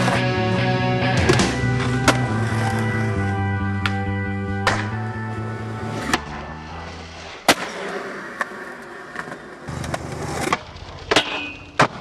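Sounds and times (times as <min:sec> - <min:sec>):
skateboard rolling: 0:00.0 - 0:12.0
skateboard popping and landing clacks: 0:04.6 - 0:05.0, 0:07.4 - 0:12.0.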